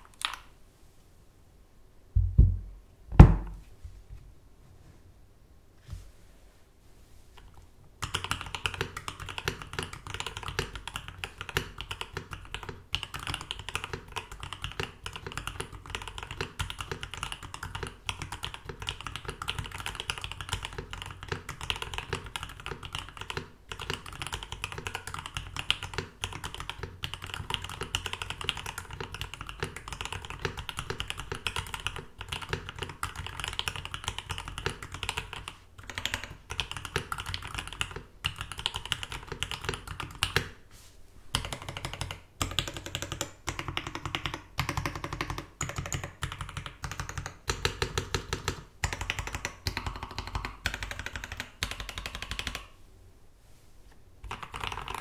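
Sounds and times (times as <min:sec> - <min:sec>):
fast typing on mechanical keyboard: 0:08.0 - 0:40.6, 0:41.3 - 0:52.7, 0:54.2 - 0:55.0.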